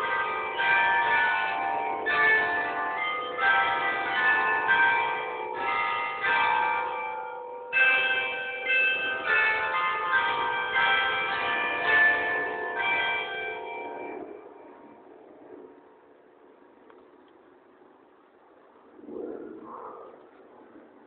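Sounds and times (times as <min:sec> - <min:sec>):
church bells ringing: 0:00.0 - 0:16.8.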